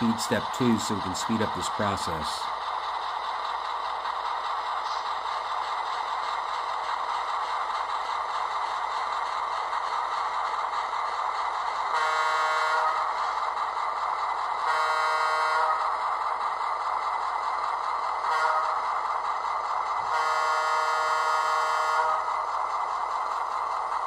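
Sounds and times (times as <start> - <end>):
model train horn blasts: 12.0 - 13.0, 14.7 - 15.8, 18.3 - 18.8, 20.1 - 22.3.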